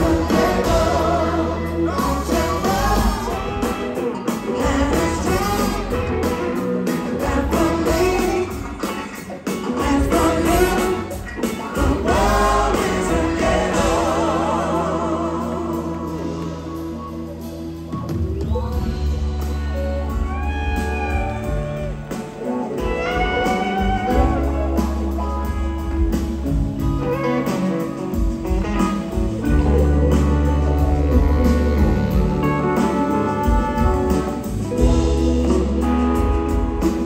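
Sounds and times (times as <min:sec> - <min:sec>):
blues-rock band playing: 0:00.0 - 0:37.0.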